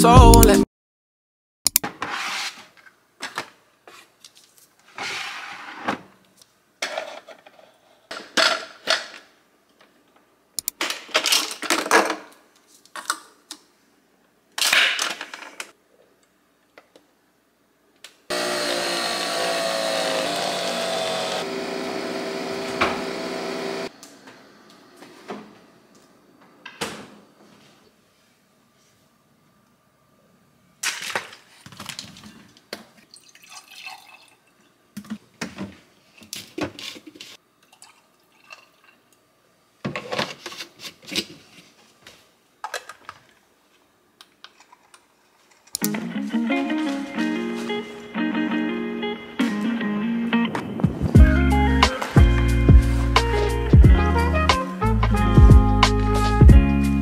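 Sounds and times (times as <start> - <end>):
coffee machine whirring hum: 18.3 - 25.0.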